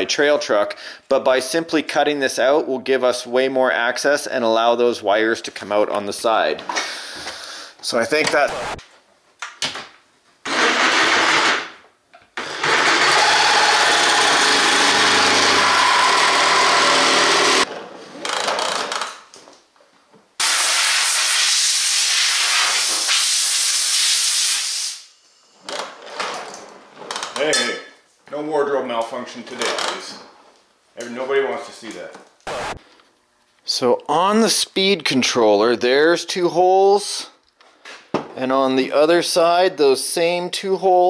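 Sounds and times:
reciprocating saw cutting metal: 0:12.4 - 0:17.7.

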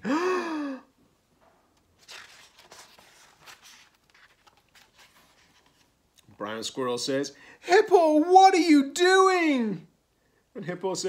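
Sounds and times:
man gasping theatrically: 0:00.0 - 0:01.0
book pages turning: 0:01.8 - 0:06.2.

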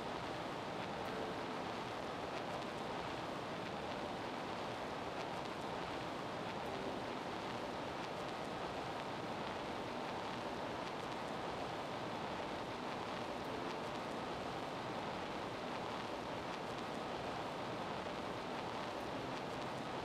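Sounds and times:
faint ticks: 0:00.8 - 0:20.0.

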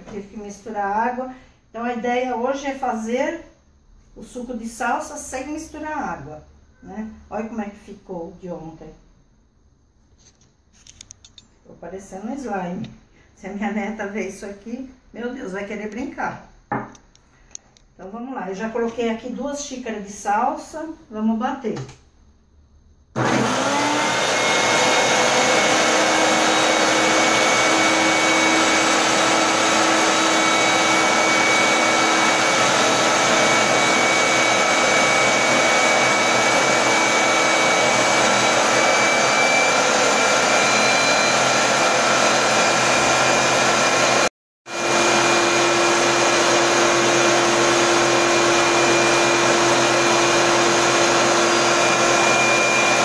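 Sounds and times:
food processor motor running: 0:23.2 - 0:53.0.

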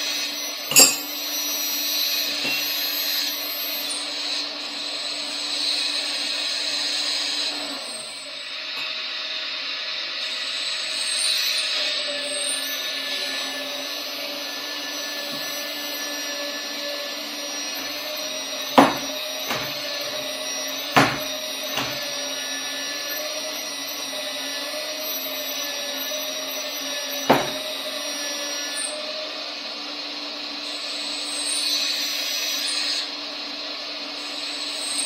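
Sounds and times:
hydraulic pump whining: 0:00.0 - 0:04.7, 0:07.4 - 0:29.2.

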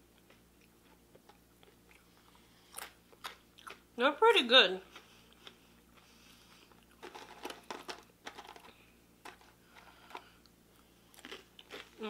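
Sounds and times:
crunching crispy pasta chips: 0:11.1 - 0:12.0.

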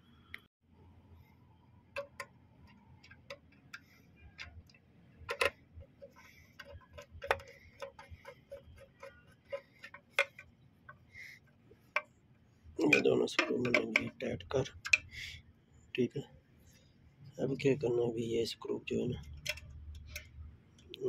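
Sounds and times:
screwdriver clicking in plastic: 0:06.6 - 0:10.5.

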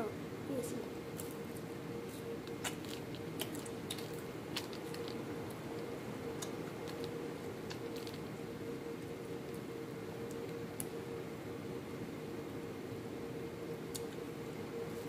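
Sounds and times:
faint hum: 0:00.0 - 0:15.0
person chewing food: 0:02.5 - 0:05.2.

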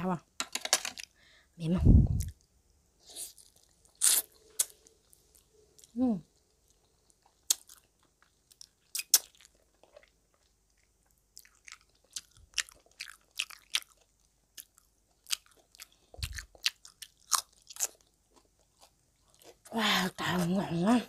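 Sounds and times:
crunchy wet chewing: 0:03.2 - 0:19.7.

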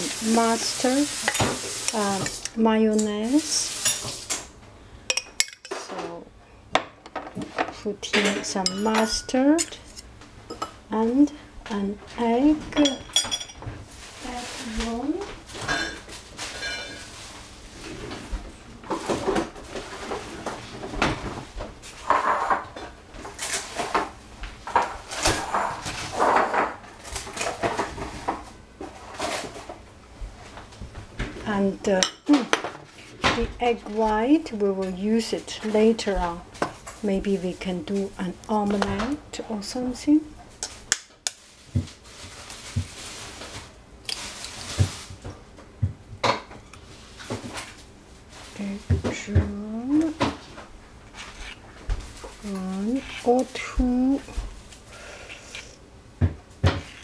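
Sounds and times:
faint rustling hiss: 0:00.0 - 0:05.0, 0:07.4 - 0:20.5.

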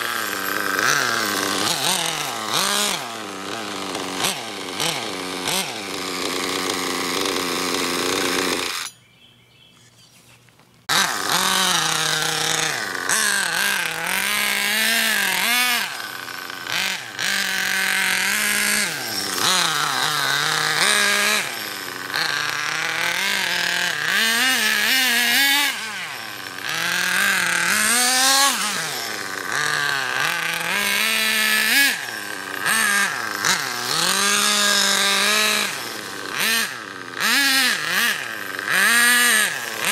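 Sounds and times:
small nitro engine revving: 0:00.0 - 0:08.9, 0:10.8 - 0:39.9.

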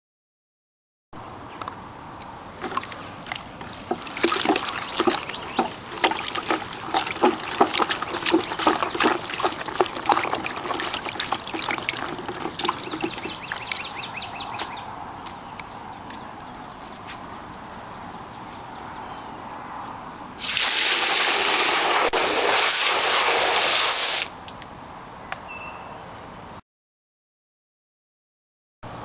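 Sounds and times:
water sloshing in plastic bucket: 0:02.6 - 0:14.7.

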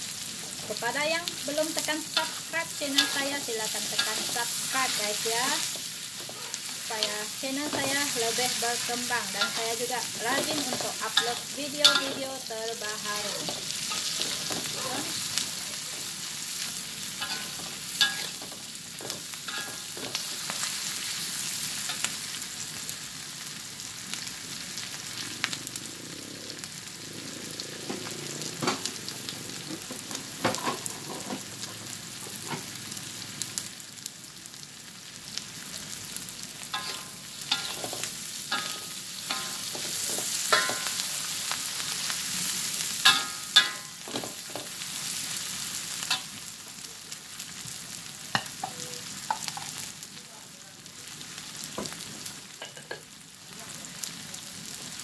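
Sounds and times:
vegetables sizzling in a wok: 0:00.0 - 0:55.0
metal spatula scraping a pan: 0:01.8 - 0:06.8, 0:07.6 - 0:12.3, 0:17.1 - 0:18.5, 0:19.1 - 0:20.4, 0:36.7 - 0:41.1.

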